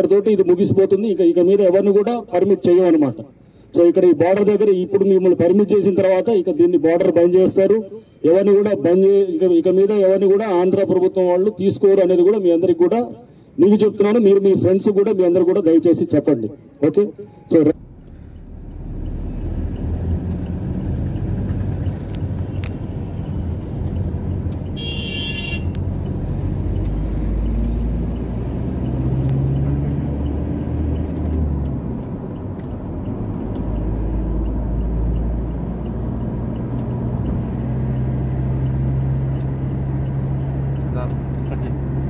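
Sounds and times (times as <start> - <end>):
road noise: 0.0 - 42.0
vehicle engine rumble: 17.2 - 42.0.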